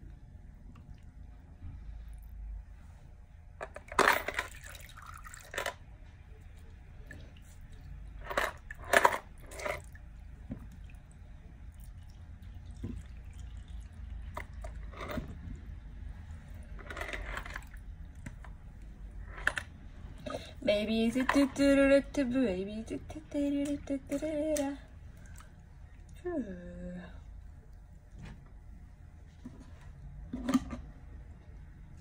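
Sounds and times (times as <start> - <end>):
wet squelching and dripping: 9.8 - 14.7, 24.2 - 26.2.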